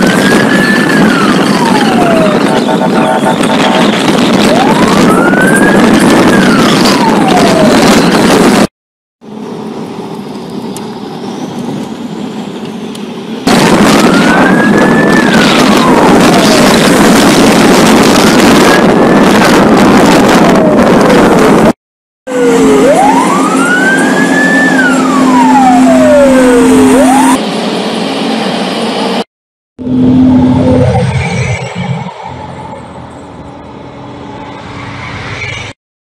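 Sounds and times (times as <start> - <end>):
siren wailing: 0.0 - 8.7, 13.4 - 21.7, 22.3 - 27.4
convoy engine and road noise: 0.0 - 35.8.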